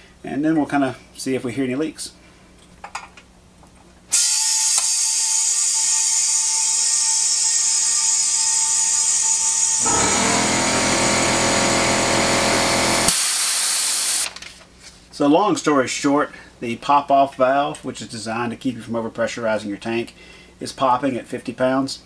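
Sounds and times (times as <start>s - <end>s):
safety valve venting air: 4.1s - 5.8s, 9.8s - 14.3s
compressed air hissing: 11.1s - 14.3s.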